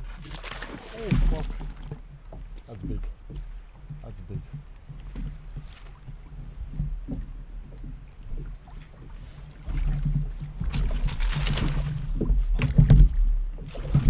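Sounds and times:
crackling splashy noise: 0.0 - 2.0
low rumble with knocks: 0.0 - 14.0.

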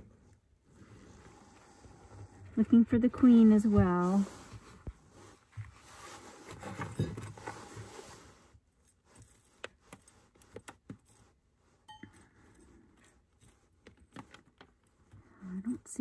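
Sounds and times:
gloved hands rustling: 3.2 - 15.4.

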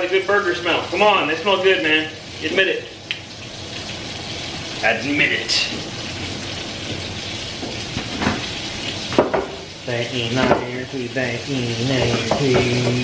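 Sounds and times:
burger patties sizzling: 0.0 - 13.0
man humming: 10.0 - 13.0.

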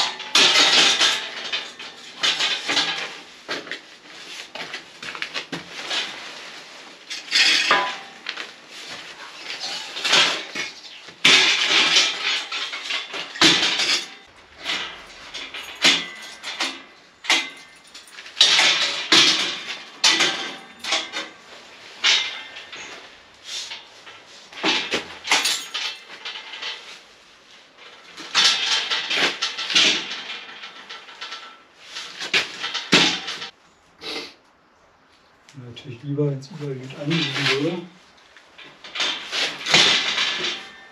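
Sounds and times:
metal door clanking and rattling: 0.0 - 3.2, 9.6 - 26.9, 28.0 - 33.5, 38.6 - 40.9.

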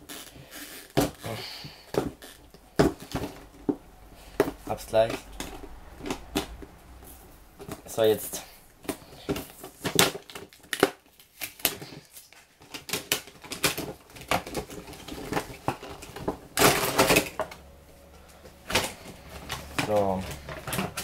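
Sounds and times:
packaging crackling: 0.0 - 21.0.

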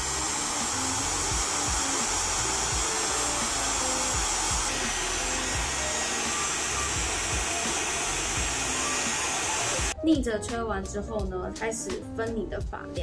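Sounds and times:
hair dryer blowing air: 0.0 - 10.0.

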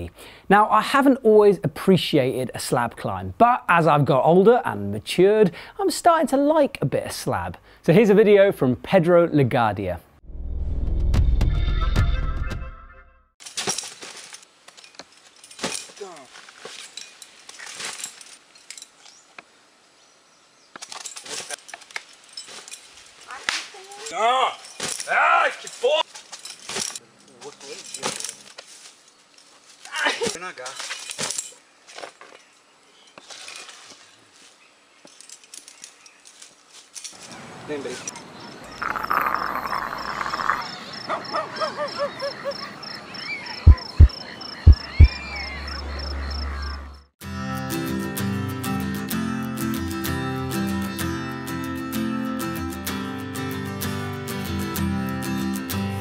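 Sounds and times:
climbing gear clinking: 13.4 - 19.3, 20.8 - 23.4, 24.4 - 32.5, 35.0 - 37.4
high chirping: 38.2 - 47.1
person calling out: 38.8 - 40.7
loud deep thumps: 43.7 - 45.2.

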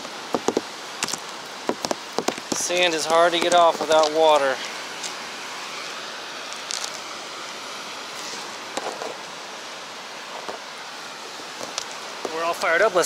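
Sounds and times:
clicks and rustles on wood: 0.3 - 4.2.

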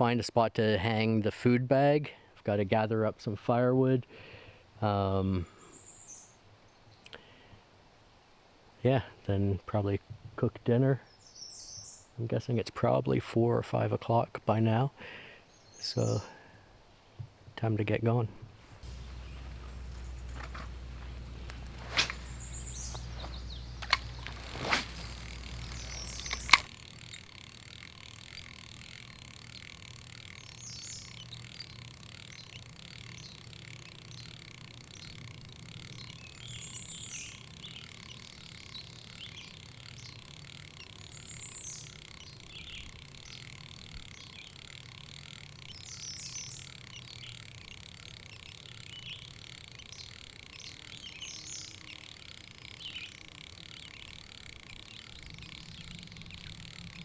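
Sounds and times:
steady high hiss: 18.5 - 57.0.

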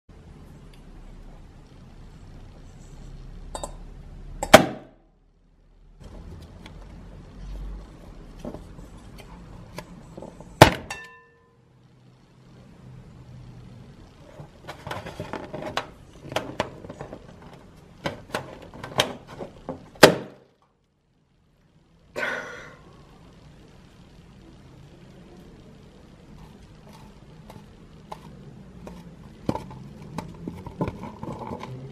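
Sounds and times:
metal bowl ringing: 3.6 - 3.8, 10.9 - 11.6.

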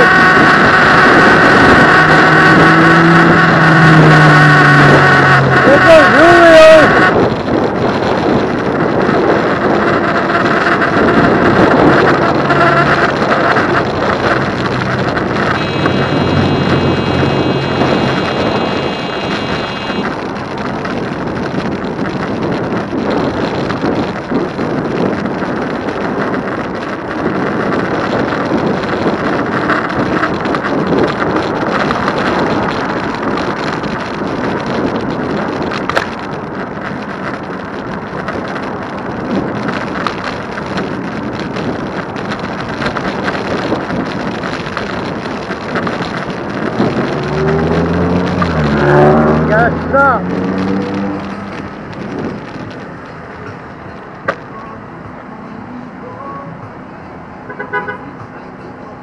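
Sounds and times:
wind rushing over microphone: 0.0 - 59.0.

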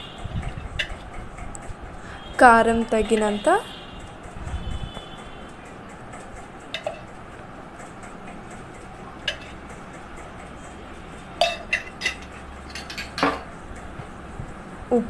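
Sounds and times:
metal spoon clinking on kitchenware: 6.8 - 7.2, 9.2 - 9.6, 11.4 - 13.5.

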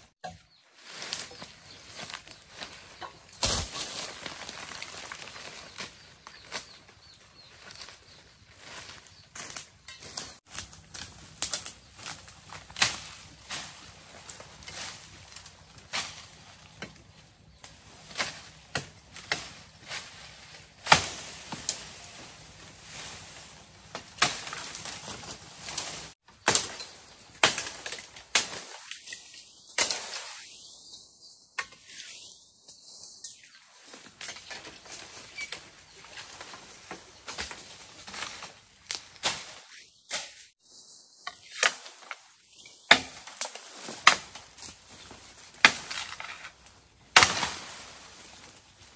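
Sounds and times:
dry bamboo leaves rustling: 0.0 - 31.1, 32.2 - 48.9
blade chopping bamboo: 42.9 - 44.4.

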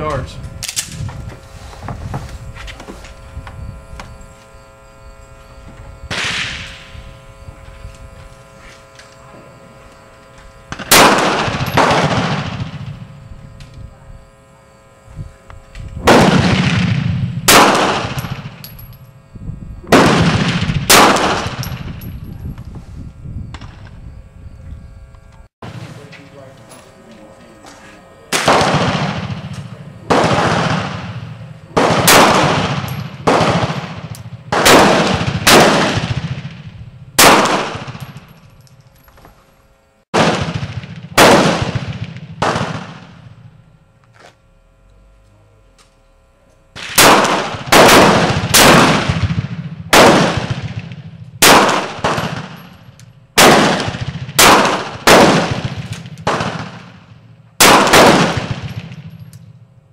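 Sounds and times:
pistol shots with echo: 10.7 - 13.1, 16.0 - 18.6, 19.9 - 21.8, 28.3 - 38.2, 40.2 - 43.3, 46.8 - 52.8, 53.4 - 59.3.

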